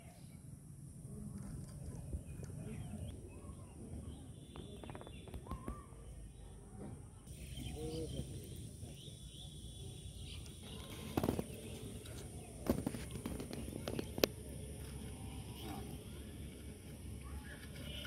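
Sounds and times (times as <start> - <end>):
bird-like chirps: 1.8 - 6.6, 7.2 - 14.4.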